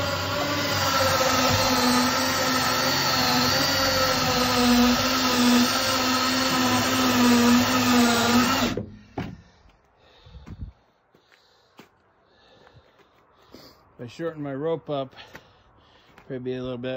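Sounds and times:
drill-powered winch whining: 0:00.0 - 0:09.0.

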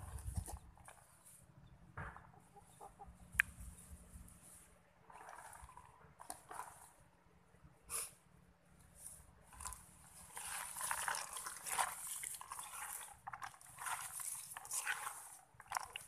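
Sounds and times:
hand squishing wet meat: 0:09.4 - 0:16.0.

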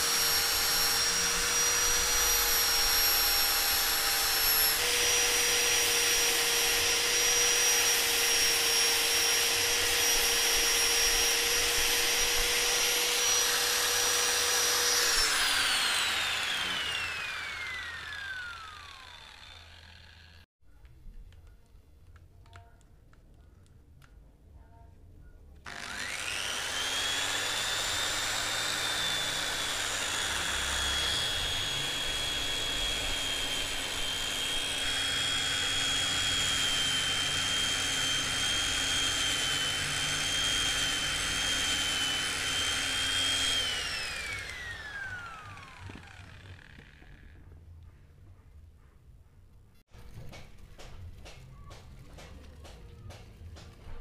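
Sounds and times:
angle grinder whine: 0:00.0 - 0:20.5, 0:25.7 - 0:47.6.

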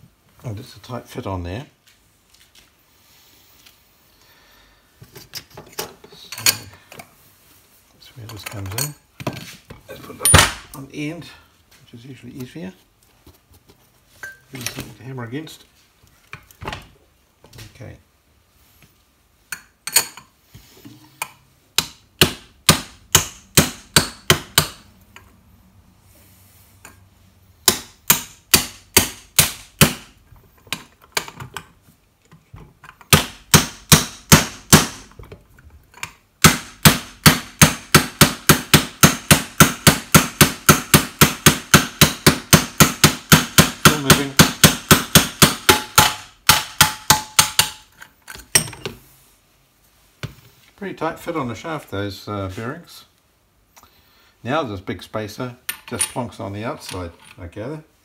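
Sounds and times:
hammer striking brass tube: 0:36.5 - 0:47.8.

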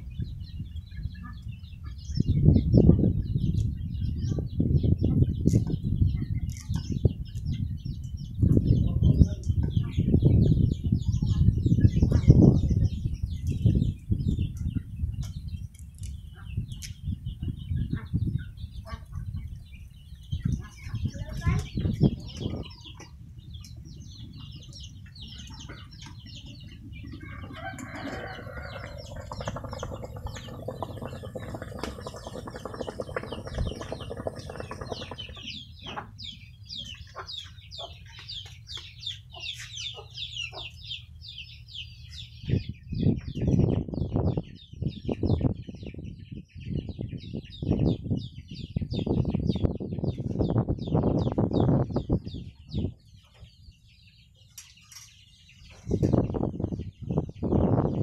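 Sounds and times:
chickens clucking: 0:17.4 - 0:19.6, 0:20.3 - 0:41.0.

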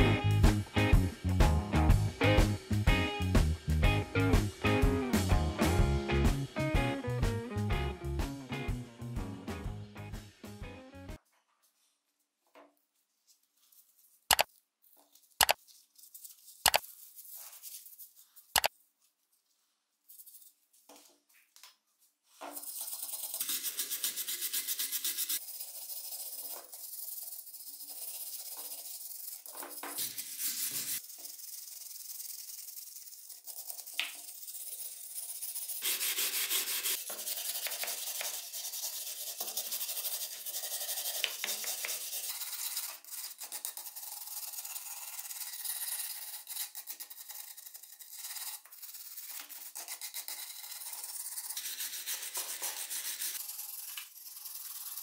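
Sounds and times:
wire brush scrubbing metal: 0:22.6 - 0:55.0.

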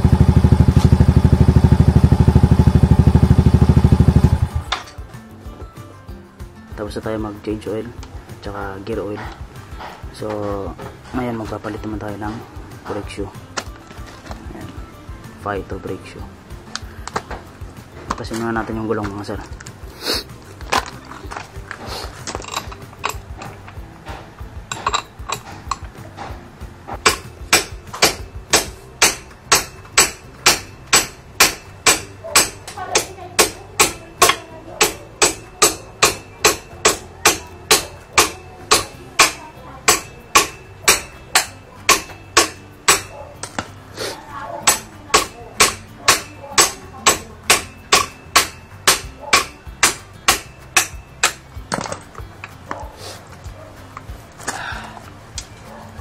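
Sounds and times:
tools clicking and knocking: 0:04.6 - 0:05.2, 0:16.7 - 0:19.8, 0:20.5 - 0:43.8, 0:44.6 - 0:54.6
hammer blows on metal: 0:24.7 - 0:43.7, 0:44.6 - 0:51.5.

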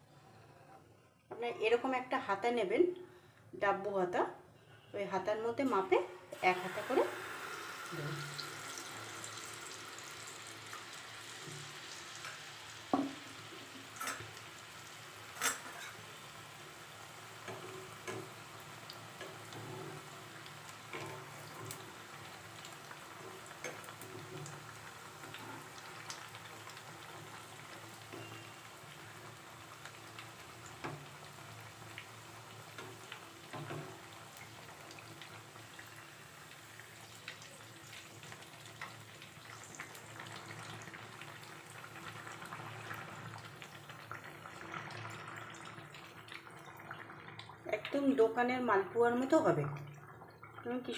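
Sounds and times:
batter sizzling in hot oil: 0:06.3 - 0:50.9.

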